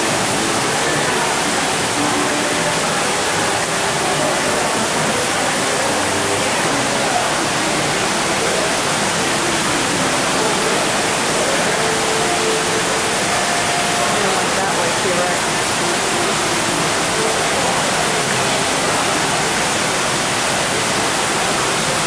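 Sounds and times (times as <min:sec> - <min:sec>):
fountain water splashing: 0:00.0 - 0:22.0.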